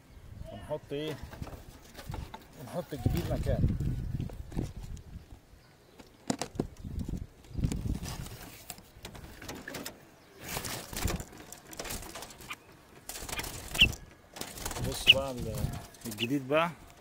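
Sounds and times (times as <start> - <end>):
rustling and scraping in a cage: 0.9 - 5.2, 5.9 - 17.0
doves cooing: 8.9 - 17.0
high bird chirp: 12.4 - 14.1, 14.9 - 16.4.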